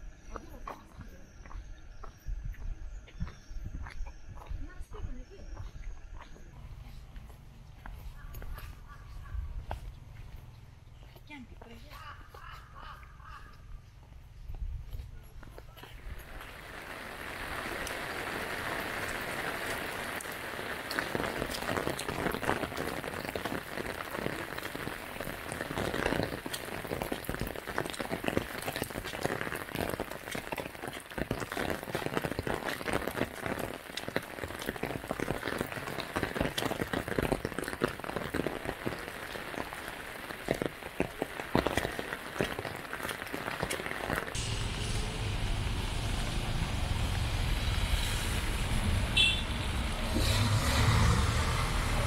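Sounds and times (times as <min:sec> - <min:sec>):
steady rain: 0:16.0 - 0:52.0.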